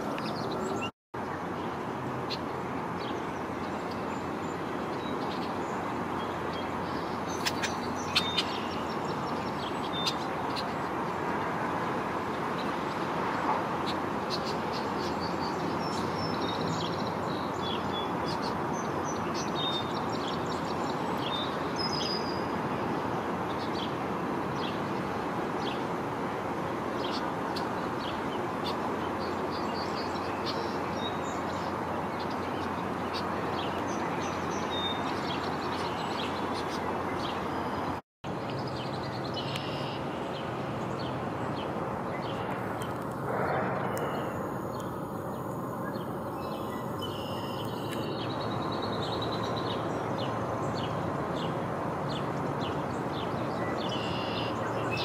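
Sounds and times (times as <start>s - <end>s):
birds chirping: 0.0s - 11.3s, 27.0s - 55.0s
steady background noise: 0.0s - 55.0s.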